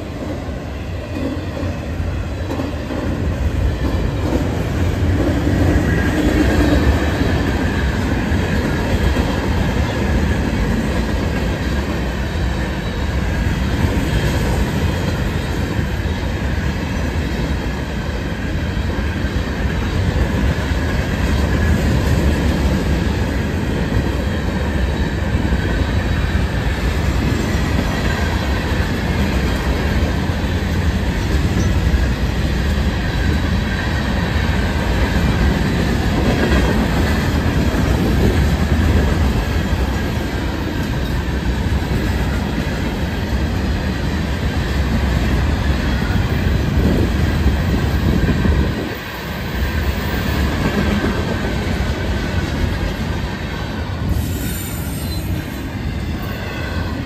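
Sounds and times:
train wheels rumbling on rail: 0:00.0 - 0:57.0
faint wheel squeal: 0:54.1 - 0:56.9.

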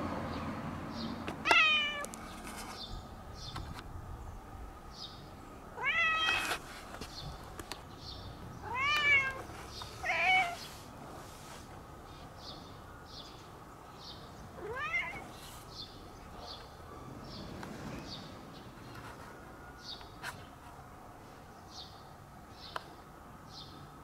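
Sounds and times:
cat meowing: 0:01.4 - 0:02.1, 0:05.8 - 0:06.6, 0:08.6 - 0:10.7, 0:14.6 - 0:15.4.

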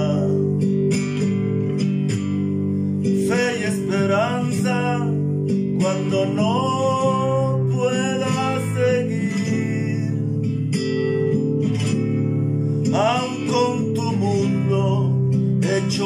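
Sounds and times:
man singing a slow ballad: 0:00.0 - 0:00.8, 0:03.0 - 0:10.6, 0:12.8 - 0:16.0
acoustic guitar accompaniment: 0:00.0 - 0:16.0.

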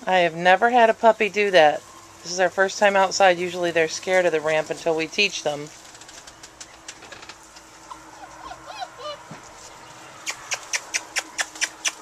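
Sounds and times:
puppies whimpering: 0:07.7 - 0:12.0.

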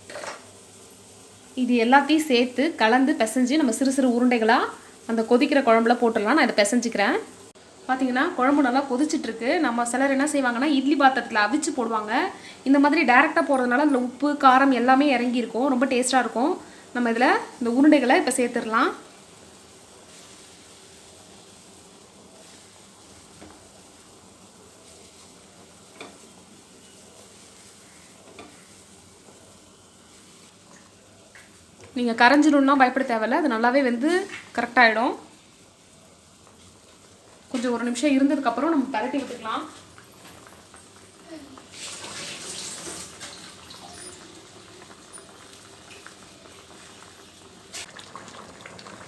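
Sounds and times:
pot boiling and bubbling: 0:00.0 - 0:49.0
gravy bubbling in a pot: 0:39.4 - 0:49.0
splashes into boiling liquid: 0:41.6 - 0:49.0.

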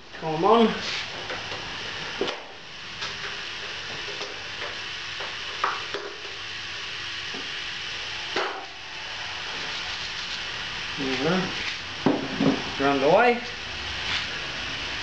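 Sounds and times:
boiler hissing: 0:00.0 - 0:15.0.

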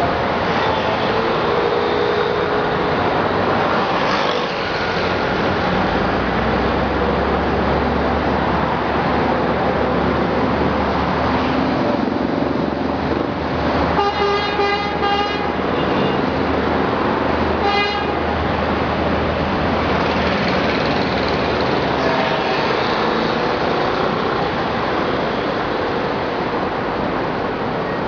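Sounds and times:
highway traffic roar: 0:00.0 - 0:28.0
car horn honking: 0:14.0 - 0:16.2, 0:17.6 - 0:18.2.

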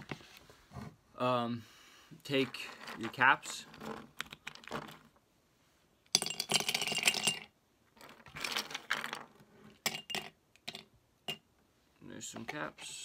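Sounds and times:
plastic caps clattering in glass jar: 0:06.1 - 0:11.4.

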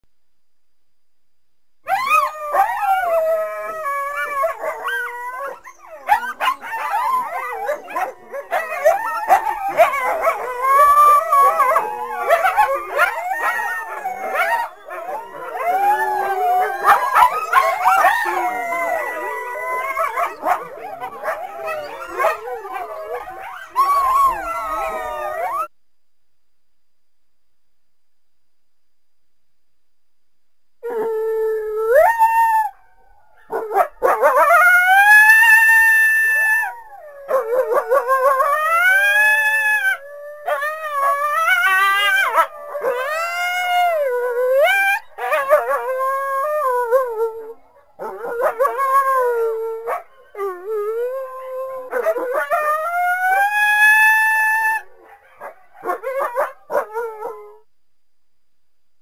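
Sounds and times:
coyote howling: 0:01.9 - 0:25.7, 0:33.6 - 0:57.6.

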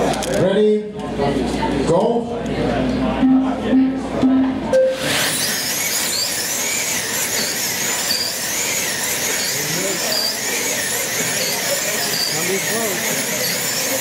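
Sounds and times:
slot car motors whining: 0:03.7 - 0:14.0.

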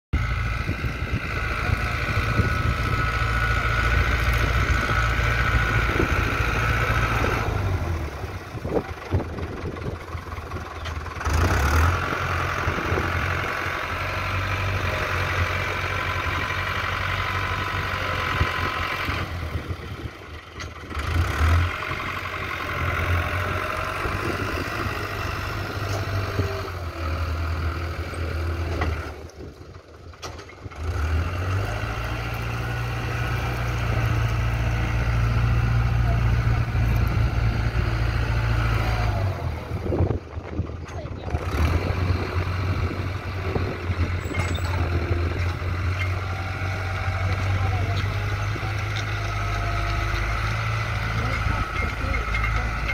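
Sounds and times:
tractor diesel engine under load: 0:00.1 - 0:52.9.

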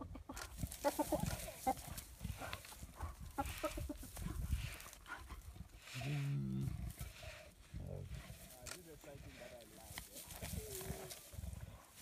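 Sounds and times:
low drawn-out growl: 0:05.3 - 0:12.0.

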